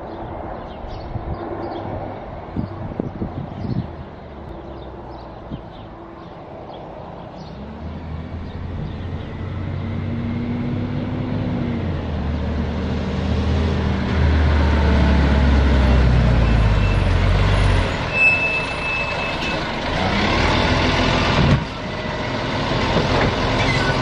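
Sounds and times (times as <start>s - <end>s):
garbage truck diesel engine: 8.1s - 24.0s.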